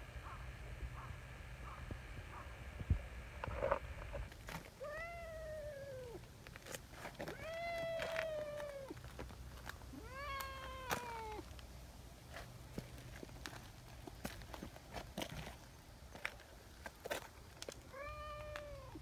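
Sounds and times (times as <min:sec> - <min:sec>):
cat meowing: 0:04.8 - 0:06.2, 0:07.3 - 0:09.0, 0:09.9 - 0:11.4, 0:17.9 - 0:19.0.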